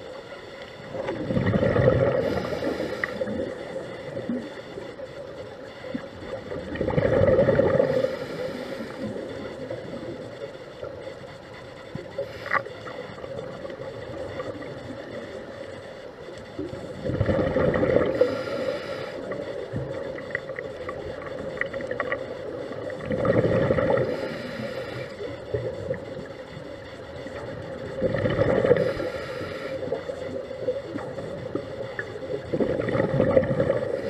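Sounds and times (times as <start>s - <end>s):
quiet regulator hiss: 0.0s - 34.0s
underwater exhaled breath bubbling: 0.8s - 4.5s, 6.3s - 10.2s, 17.0s - 20.6s, 21.3s - 26.0s, 27.8s - 34.0s.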